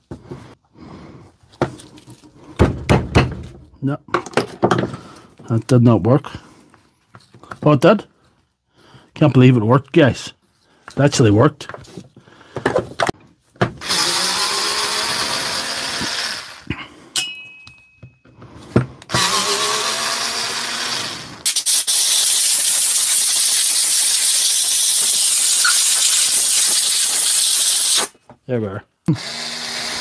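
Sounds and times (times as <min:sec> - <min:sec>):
impact driver motor whine: 0:13.8 - 0:16.6, 0:19.1 - 0:21.3
loud steady hiss: 0:21.4 - 0:28.1.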